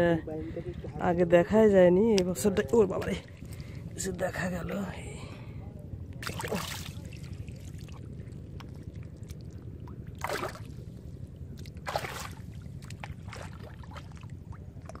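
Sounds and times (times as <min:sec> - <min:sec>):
low rumble: 0:00.0 - 0:15.0
fish splashing in water: 0:06.2 - 0:08.1, 0:08.7 - 0:10.8, 0:11.6 - 0:15.0.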